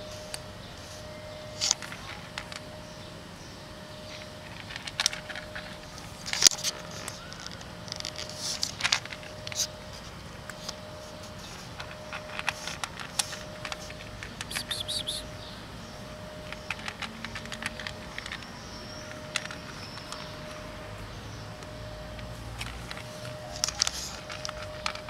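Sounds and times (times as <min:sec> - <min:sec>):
cat crunching dry kibble: 0:04.1 - 0:15.3, 0:16.3 - 0:20.6, 0:21.6 - 0:25.0.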